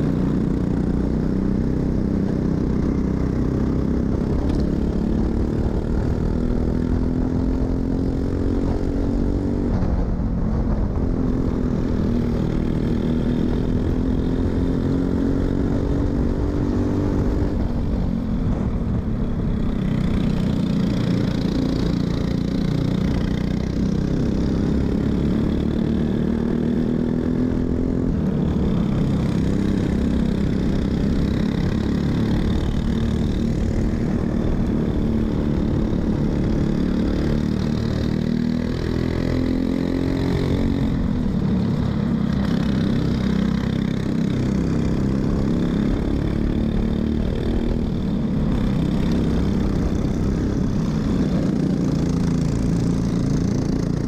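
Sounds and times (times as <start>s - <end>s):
nearby kart engine: 0.0s - 54.0s
kart engine revving: 19.5s - 54.0s.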